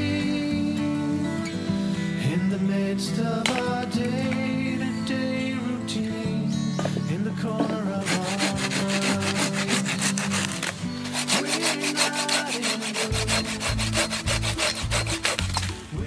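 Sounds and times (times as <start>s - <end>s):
hand saw cutting wood: 8.0s - 15.8s.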